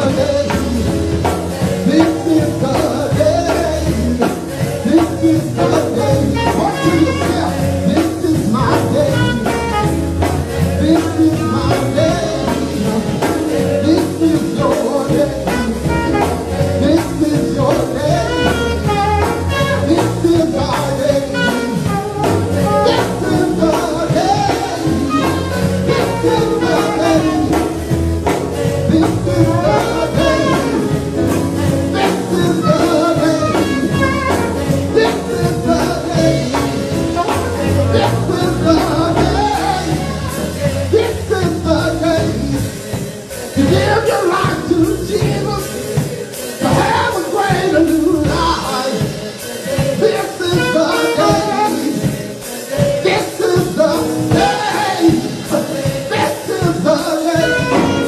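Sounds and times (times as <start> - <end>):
backing singers: 0.0 - 58.0
instrumental accompaniment: 0.0 - 58.0
man singing lead vocal: 0.0 - 58.0.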